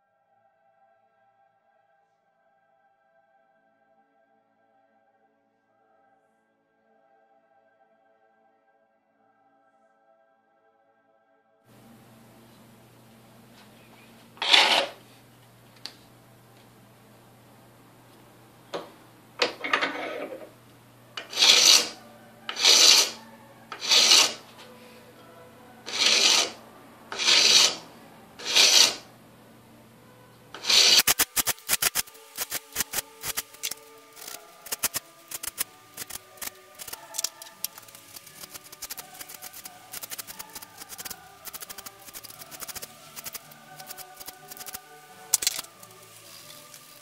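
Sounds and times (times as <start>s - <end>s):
file rasping on metal: 14.4s - 15.0s, 19.6s - 20.5s, 21.2s - 24.5s, 25.9s - 29.1s, 30.6s - 44.8s.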